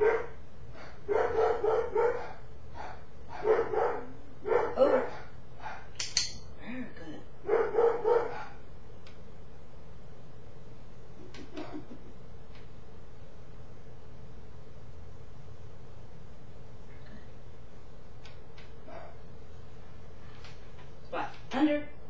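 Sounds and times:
dog barking: 0:00.0 - 0:06.0, 0:07.4 - 0:08.6, 0:18.8 - 0:19.2.

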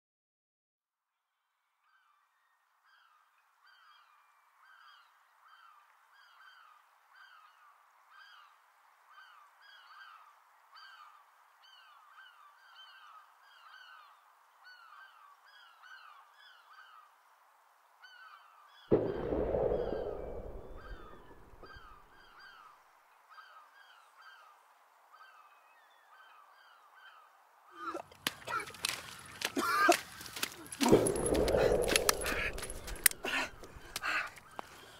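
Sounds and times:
loud deep boom: 0:18.9 - 0:22.1, 0:30.8 - 0:34.0.

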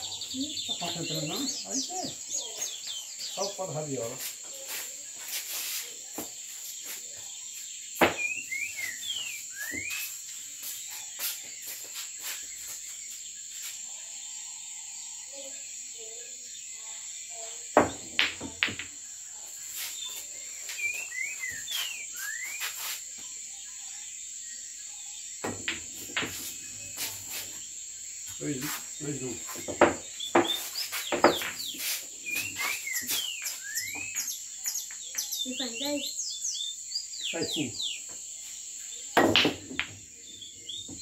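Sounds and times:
crickets chirring: 0:00.0 - 0:41.0
pool balls clacking: 0:17.8 - 0:19.0, 0:25.4 - 0:26.5, 0:29.7 - 0:31.6, 0:39.2 - 0:40.0.

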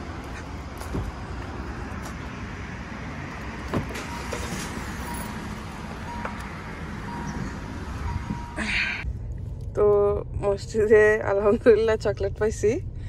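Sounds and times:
car cabin rumble: 0:03.6 - 0:13.0
warning chime beeping: 0:04.0 - 0:09.0.

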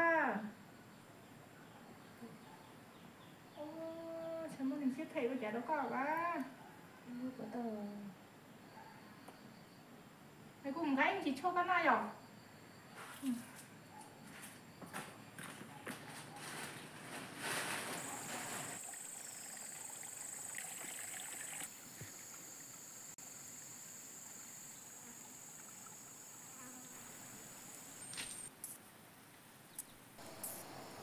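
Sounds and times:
insects droning: 0:00.2 - 0:31.0
rustling noise: 0:12.9 - 0:18.8.

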